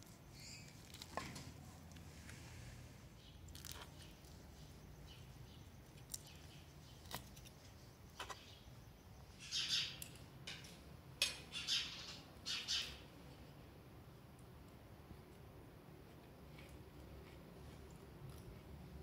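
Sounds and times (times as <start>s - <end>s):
birds chirping: 3.1s - 10.0s.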